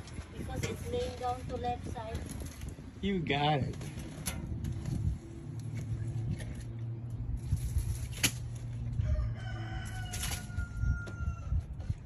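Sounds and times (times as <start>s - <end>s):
rooster crowing: 9.0s - 11.6s.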